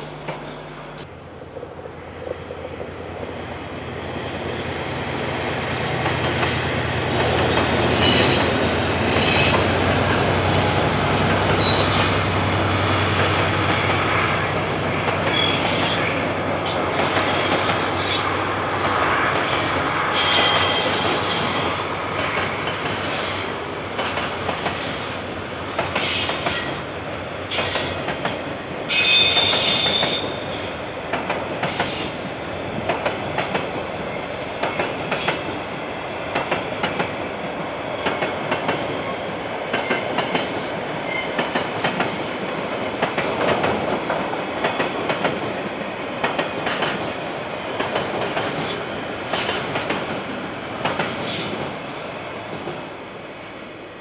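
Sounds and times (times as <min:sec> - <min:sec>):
locomotive engine hum: 0:00.0 - 0:54.0
high wheel squeals: 0:11.5 - 0:12.2, 0:15.3 - 0:16.2, 0:20.1 - 0:21.6, 0:28.9 - 0:30.7.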